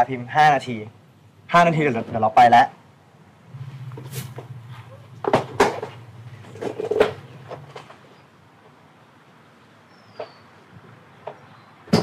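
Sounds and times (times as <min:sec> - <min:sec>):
low steady hum: 0:02.8 - 0:09.9
sharp knocks and clatters: 0:05.2 - 0:08.1, 0:11.2 - 0:12.0.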